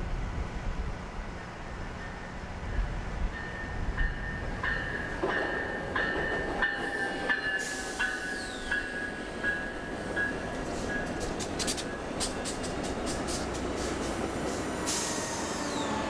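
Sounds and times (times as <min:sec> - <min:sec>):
train wheels clicking on rail joints: 0:03.3 - 0:16.0.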